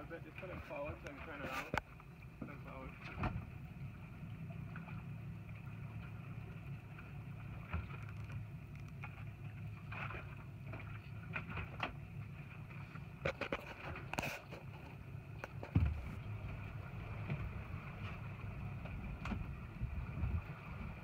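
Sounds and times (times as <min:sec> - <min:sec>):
boat engine idling: 0:00.0 - 0:21.0.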